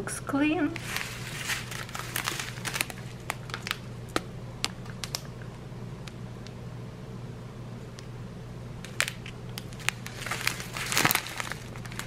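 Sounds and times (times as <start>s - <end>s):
plastic bags crinkling: 0.7s - 5.4s, 8.8s - 12.0s.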